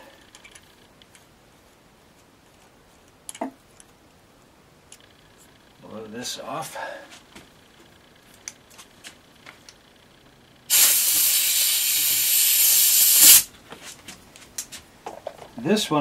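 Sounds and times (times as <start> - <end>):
compressed air blow gun hissing: 10.7 - 13.5.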